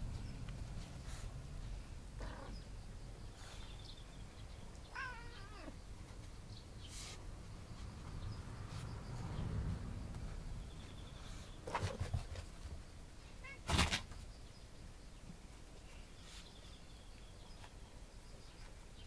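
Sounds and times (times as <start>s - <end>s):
cat meowing: 4.9s - 5.8s, 13.4s - 13.7s.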